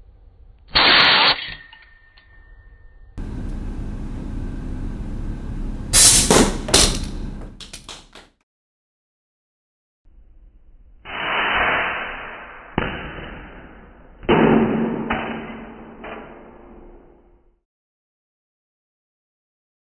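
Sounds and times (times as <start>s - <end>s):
hiss of released air: 0.8s - 1.4s, 5.9s - 6.6s, 11.1s - 12.5s
launcher firing crack: 6.0s - 7.3s.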